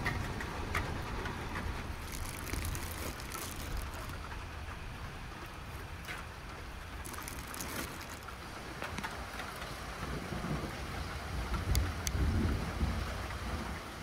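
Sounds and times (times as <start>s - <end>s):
plastic bag crinkling: 1.9s - 4.3s, 7.0s - 9.0s.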